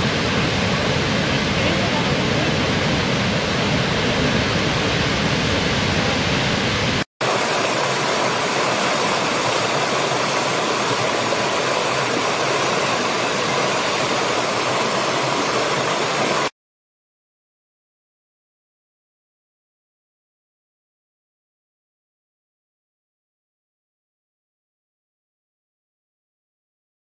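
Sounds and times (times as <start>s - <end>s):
large waterfall rushing: 0.0s - 16.5s
stream running over rocks: 7.2s - 16.5s.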